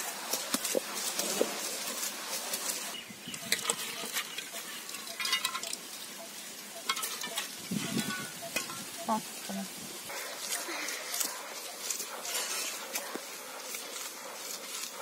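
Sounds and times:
stone grinder scraping lentils: 0.0s - 5.8s.

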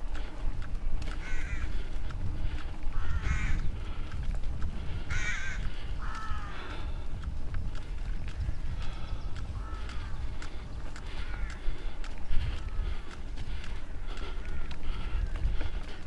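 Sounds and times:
bike rattling and clicking: 0.0s - 16.0s
wind rumble on microphone: 0.0s - 16.0s.

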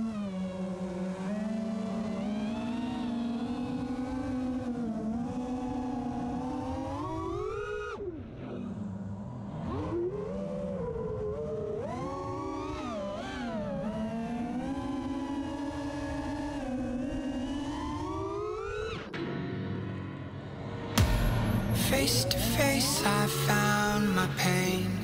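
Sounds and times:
quadcopter motors whining: 0.0s - 8.0s.

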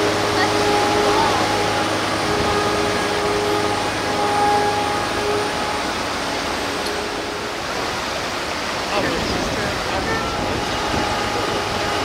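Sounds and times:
diesel engine running: 0.0s - 8.3s
waves breaking: 0.0s - 12.0s.

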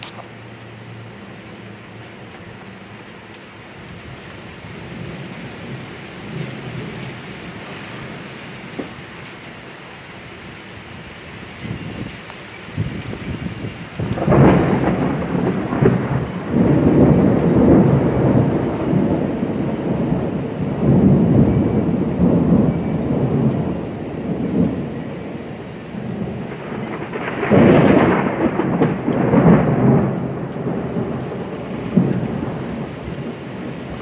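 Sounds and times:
thunder rumbling: 0.0s - 34.0s
sharp thunder peal: 12.8s - 34.0s.

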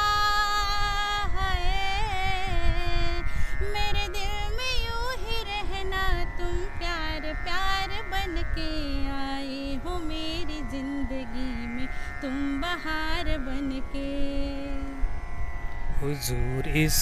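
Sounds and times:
woman singing: 0.0s - 15.1s
held drone accompaniment: 9.9s - 17.0s.

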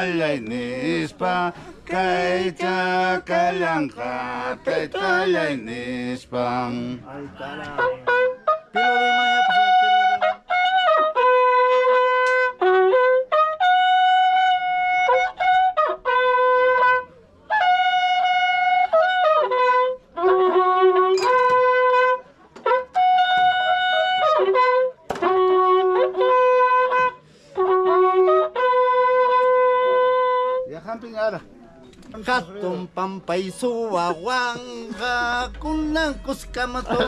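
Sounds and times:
horn trumpets long held notes: 7.7s - 30.7s, 34.0s - 37.0s.

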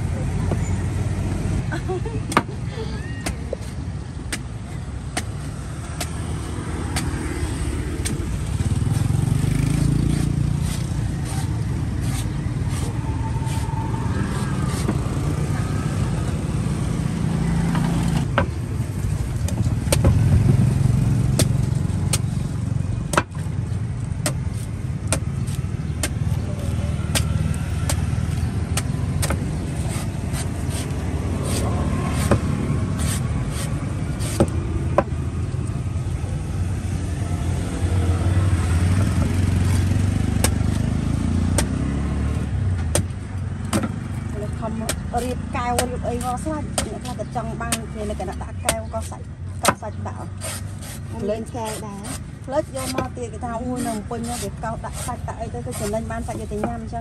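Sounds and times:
street traffic rumble: 0.0s - 57.0s
cleaver chopping coconut: 2.2s - 2.6s, 3.2s - 13.7s, 14.3s - 15.1s, 19.4s - 20.3s, 21.2s - 22.3s, 23.1s - 23.5s, 24.2s - 26.5s, 27.1s - 35.2s, 39.0s - 42.2s, 42.8s - 56.9s.

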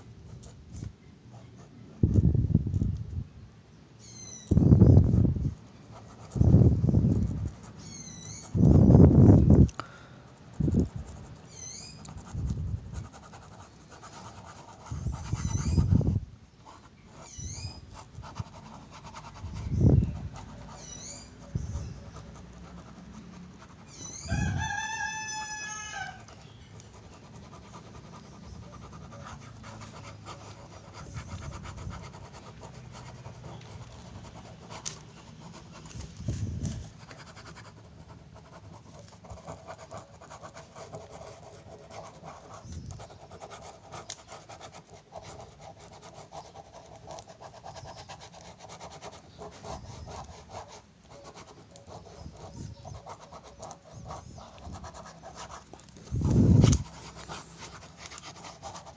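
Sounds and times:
small birds chirping: 3.7s - 5.0s, 7.0s - 8.9s, 11.4s - 12.2s, 13.6s - 23.2s, 23.8s - 24.4s, 41.0s - 44.5s, 46.2s - 57.7s
pen scribbling on paper: 5.9s - 9.4s, 10.4s - 58.9s
rooster crowing: 24.1s - 26.4s.

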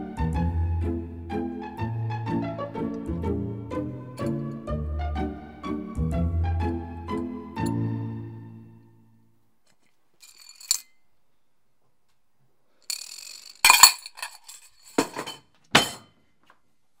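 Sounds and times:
coins clinking on porcelain: 10.2s - 11.0s, 12.9s - 16.0s.

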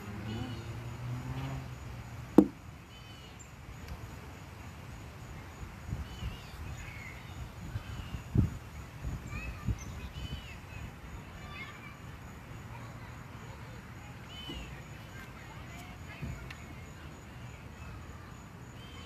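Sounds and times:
birds chirping: 0.0s - 1.6s, 2.3s - 3.9s, 5.4s - 12.1s, 12.8s - 19.0s
dull low thuds: 2.4s - 2.6s.

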